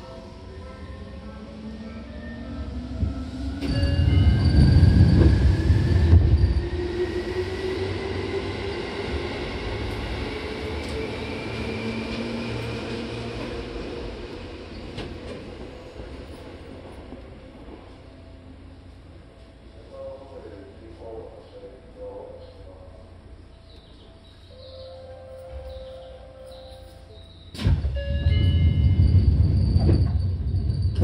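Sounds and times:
train wheel and rail rumble: 0.0s - 31.0s.

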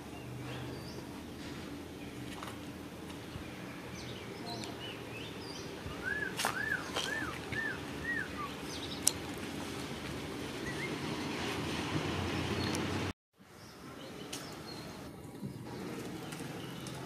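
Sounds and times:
bird whistling: 5.2s - 9.0s, 10.6s - 11.0s.

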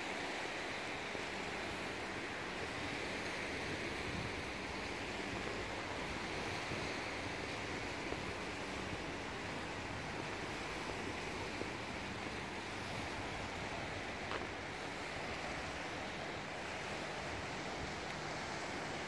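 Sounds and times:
wind: 0.0s - 19.0s
waves lapping on pebbles: 0.1s - 19.0s
faint click: 18.0s - 18.2s.

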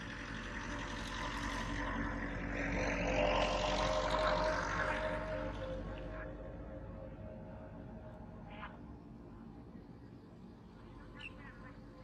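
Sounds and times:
motor engine drone: 0.0s - 9.5s.

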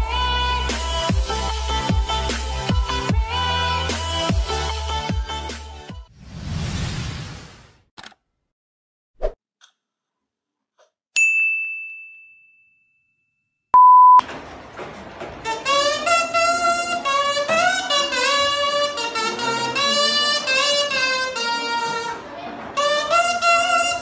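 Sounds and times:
click and bell-like ding: 11.2s - 13.0s
loud steady beep: 13.8s - 14.2s.

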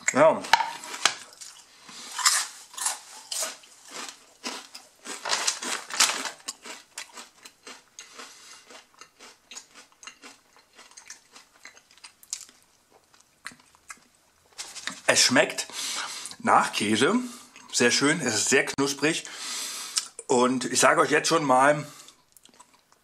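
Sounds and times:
person chewing crunchy chip: 0.0s - 14.1s, 22.0s - 23.0s.

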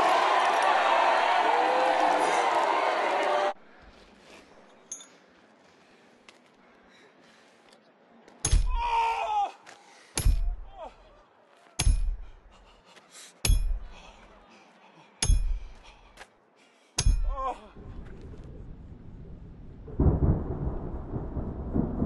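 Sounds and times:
thunder rumble: 17.8s - 22.0s.

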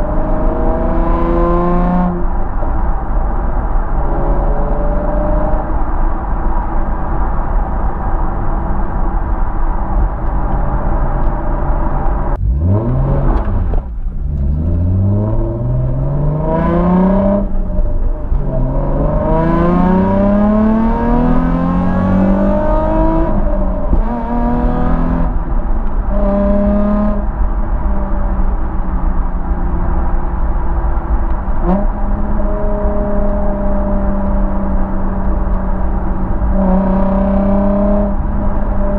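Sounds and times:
car exhaust accelerating through gears: 0.0s - 38.9s.

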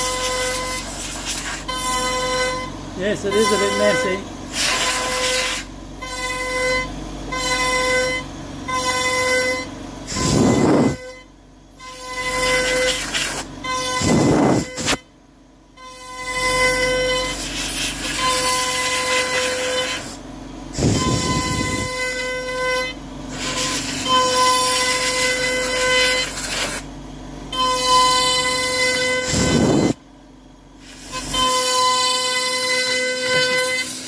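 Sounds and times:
air nozzle blowing: 0.0s - 2.0s, 3.4s - 5.7s, 10.0s - 11.0s, 12.3s - 15.0s, 17.3s - 22.0s, 23.3s - 26.8s, 29.2s - 30.0s, 30.8s - 31.7s
router spindle whining: 0.0s - 15.0s, 15.8s - 26.9s, 27.5s - 30.0s, 30.9s - 34.0s.

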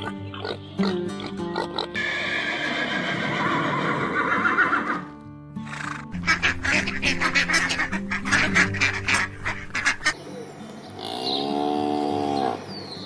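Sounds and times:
background music: 0.0s - 13.0s
duck quacking: 5.6s - 10.2s.

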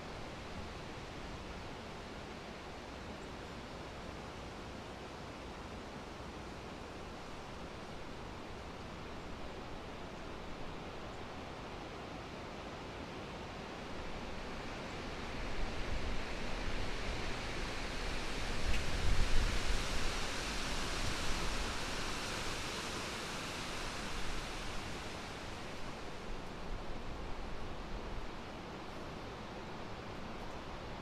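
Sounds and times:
wind through tree leaves: 0.0s - 31.0s
wind rumble on microphone: 15.4s - 28.4s.

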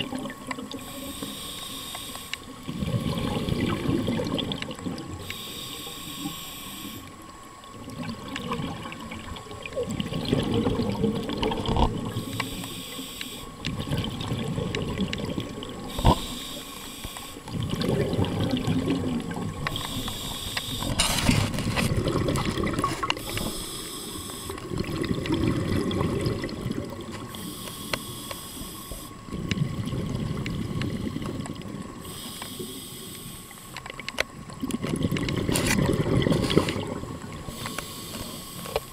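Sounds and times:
rumble of exhaled bubbles: 0.0s - 1.0s, 2.4s - 5.4s, 7.4s - 12.6s, 13.6s - 16.6s, 17.4s - 23.6s, 24.4s - 27.5s, 29.2s - 32.1s, 34.0s - 37.8s
regulator hiss on inhale: 0.7s - 3.5s, 5.1s - 7.3s, 12.1s - 13.7s, 15.8s - 17.6s, 19.6s - 21.8s, 22.8s - 24.7s, 27.2s - 29.3s, 32.0s - 33.9s, 37.4s - 38.9s.

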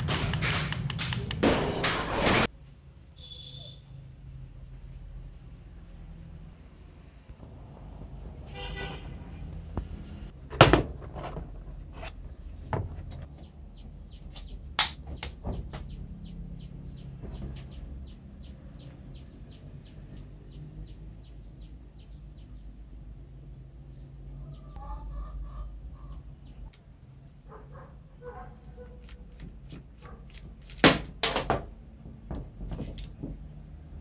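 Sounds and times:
small birds chirping: 2.5s - 4.1s, 13.2s - 30.2s.

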